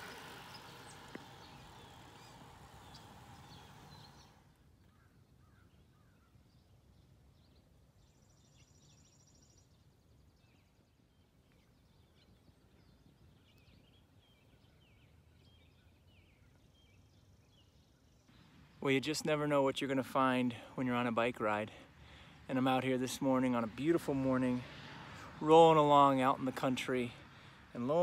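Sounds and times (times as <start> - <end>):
steady hiss: 0.0 - 4.5
songbird chirps and calls: 0.0 - 20.5.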